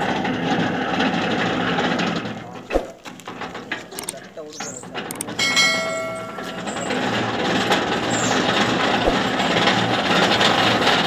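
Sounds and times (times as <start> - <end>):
rig engine and winch running: 0.0 - 11.0
metal pipe clang: 5.4 - 7.3.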